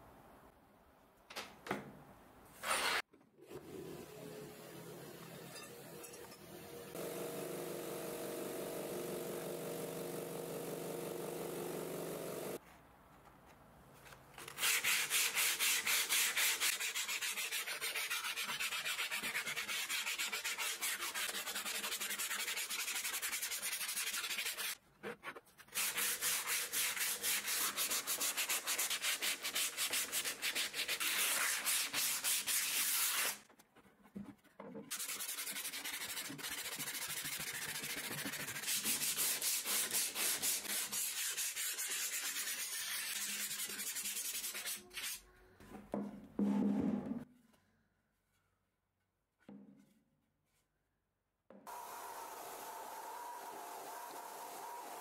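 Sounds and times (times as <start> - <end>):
sandpaper rubbing wood: 14.5 - 33.5, 34.9 - 45.2.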